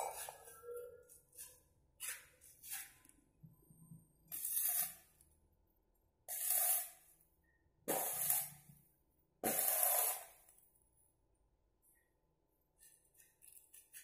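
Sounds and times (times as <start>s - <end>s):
welding arc crackling: 9.4s - 10.4s.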